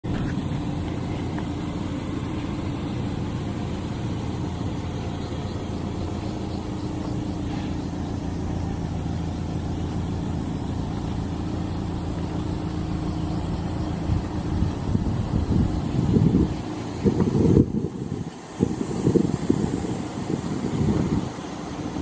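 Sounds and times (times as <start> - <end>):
vehicle engine idling: 0.0 - 22.0.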